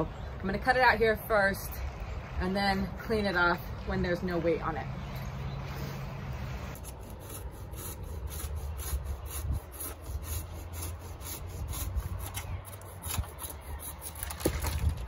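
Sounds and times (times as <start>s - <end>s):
hand saw cutting a branch: 6.8s - 14.9s.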